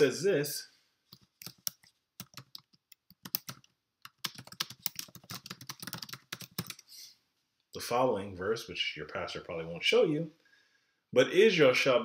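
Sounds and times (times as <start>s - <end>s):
typing on computer keyboard: 1.1s - 6.8s.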